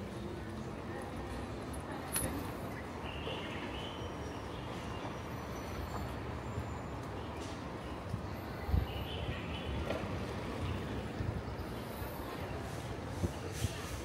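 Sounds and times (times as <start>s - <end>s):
low street rumble: 0.0s - 14.0s.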